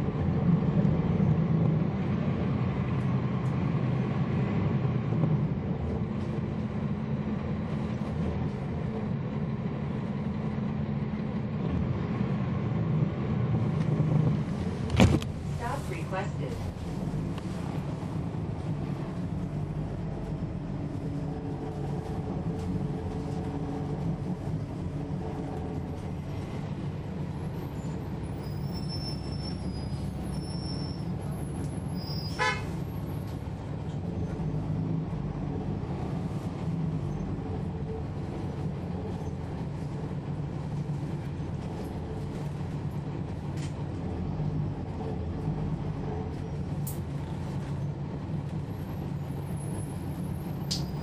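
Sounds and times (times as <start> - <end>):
diesel bus engine drone: 0.0 - 51.0.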